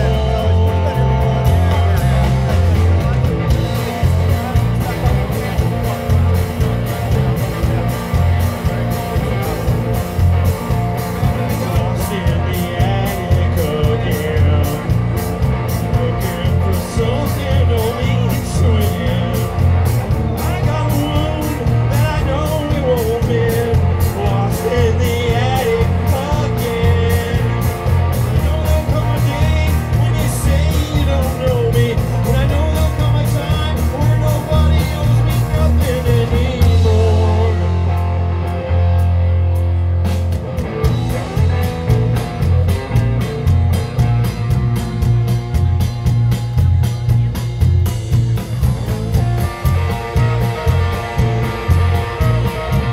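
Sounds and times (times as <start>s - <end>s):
drum kit: 0.0s - 52.9s
electric bass: 0.0s - 52.9s
electric guitar: 0.0s - 52.9s.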